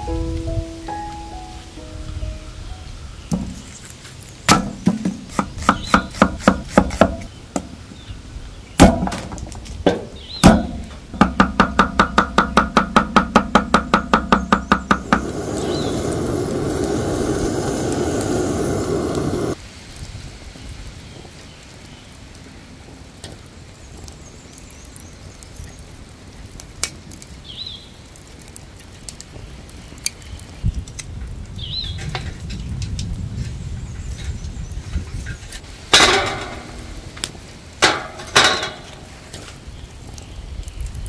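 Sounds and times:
bird chirps: 5.6s - 6.2s, 14.4s - 16.8s
steady rough noise: 13.4s - 19.6s.

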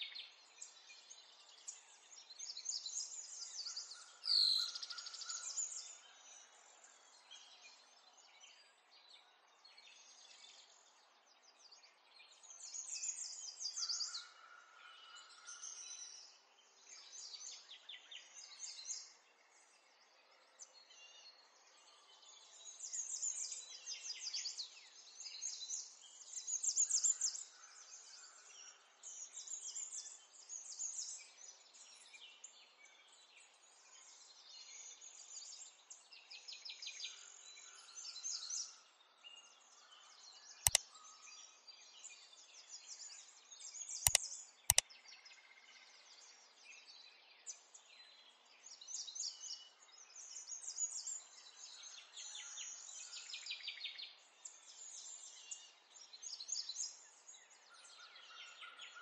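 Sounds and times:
birds chirping: 40.7s - 40.9s, 44.1s - 44.8s
sharp clicks: 44.1s - 44.8s.

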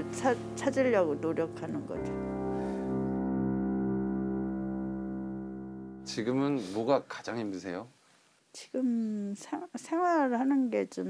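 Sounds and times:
held keyboard chord: 0.0s - 6.9s.

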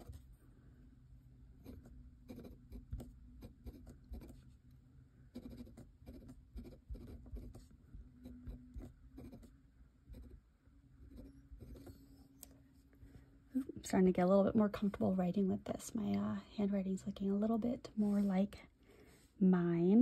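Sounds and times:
pen nib scratching paper: 1.6s - 4.6s, 5.3s - 10.4s, 11.0s - 12.2s.

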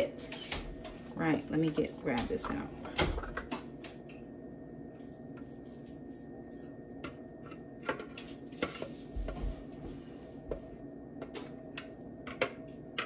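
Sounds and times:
low steady hum: 0.0s - 13.0s
spatula scraping a plastic bowl: 8.5s - 9.4s.

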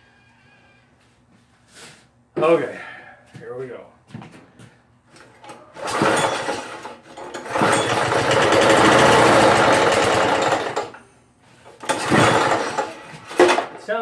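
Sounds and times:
lawn mower engine sputtering: 5.4s - 11.0s, 11.7s - 13.8s.

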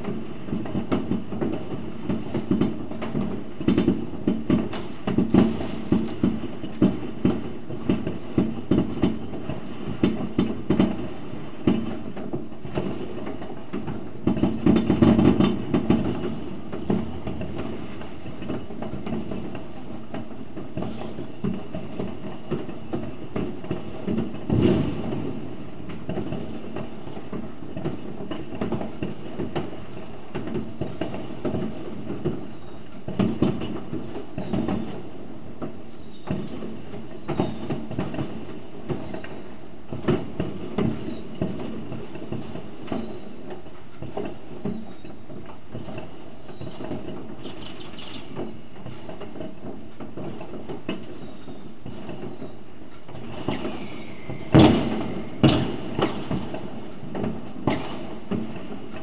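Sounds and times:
fireworks bangs and crackles: 0.0s - 59.0s
loud sharp bang: 24.1s - 28.0s, 53.4s - 56.6s.

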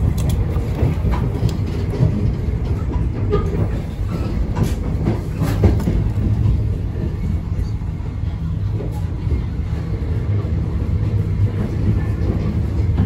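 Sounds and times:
clacks over rail joints: 0.0s - 7.7s
train wheels rumbling on track: 0.0s - 13.0s.

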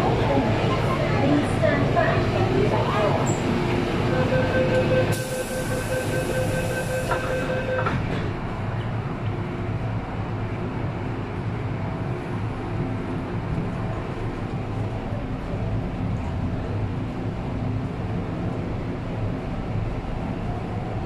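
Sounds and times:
train car rumble: 0.0s - 21.0s
door-closing warning tone: 4.1s - 8.3s.

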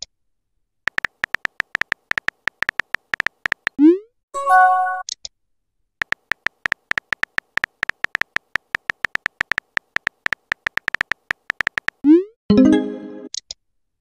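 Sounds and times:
keypress beeps: 0.9s - 3.8s, 6.0s - 12.2s.

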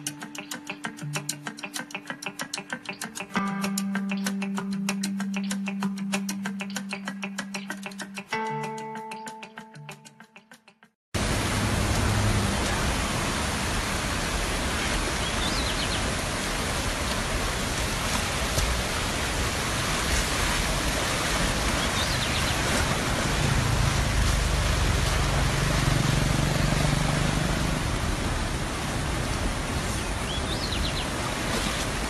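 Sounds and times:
fast-flowing river rushing: 11.2s - 32.0s.

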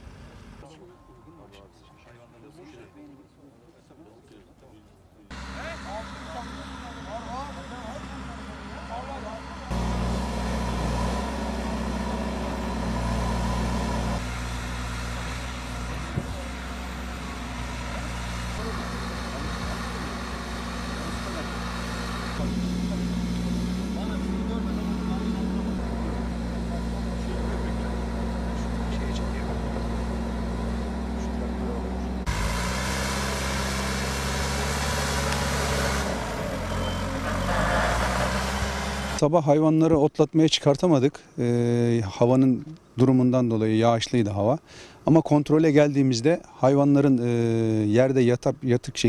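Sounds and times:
vehicle engine idling: 0.0s - 1.8s, 5.3s - 39.2s.

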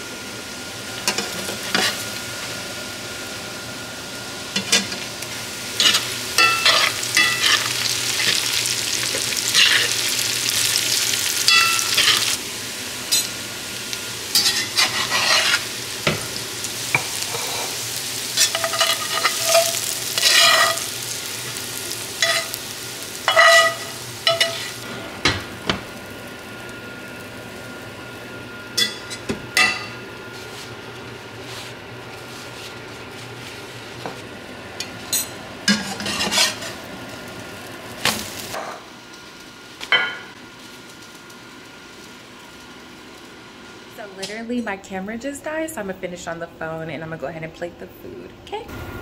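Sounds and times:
potatoes sizzling in a frying pan: 0.0s - 44.7s
utensil scraping and stirring: 5.8s - 8.4s, 14.4s - 15.7s, 18.4s - 20.8s, 35.7s - 36.8s.

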